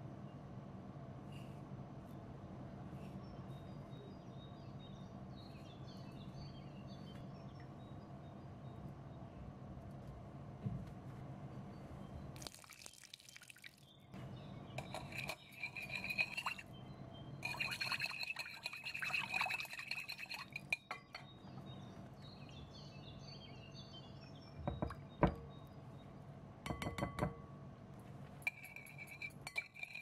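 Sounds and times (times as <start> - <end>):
water pouring into bowl: 12.4 - 13.9, 15.0 - 16.6, 17.4 - 20.7
whisk clinking against glass bowl: 14.8 - 16.7, 17.4 - 21.2, 28.4 - 30.0
spoon knocking on bowl: 26.7 - 27.4.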